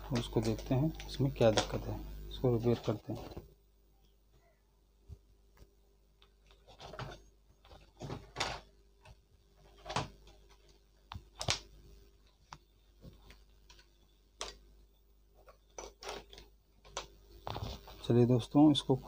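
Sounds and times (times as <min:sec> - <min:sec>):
plastic toy car being handled: 0:06.4 - 0:10.8, 0:15.4 - 0:18.0.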